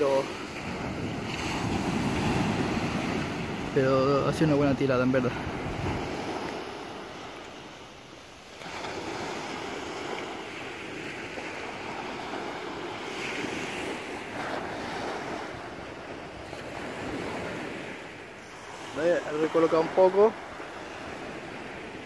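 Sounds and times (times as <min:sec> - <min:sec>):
waves washing up pebble beach: 0:00.0 - 0:07.4, 0:08.5 - 0:22.0
wind on microphone: 0:00.0 - 0:07.6.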